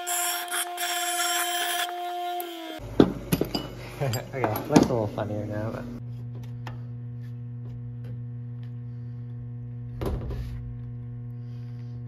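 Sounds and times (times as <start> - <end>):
electrical mains hum: 2.8 - 12.0.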